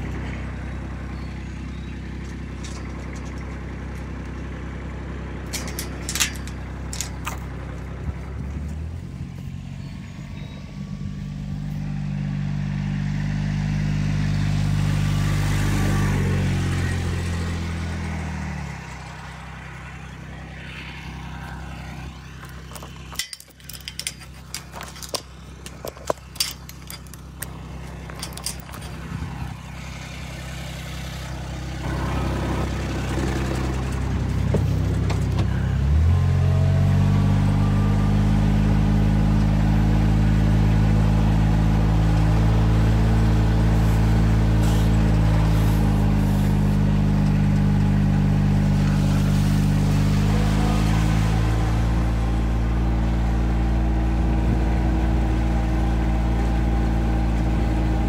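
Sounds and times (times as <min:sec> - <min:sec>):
vehicle engine running: 0:00.0 - 0:58.0
metal gate clanking: 0:01.6 - 0:04.3, 0:05.4 - 0:07.8, 0:22.4 - 0:29.5.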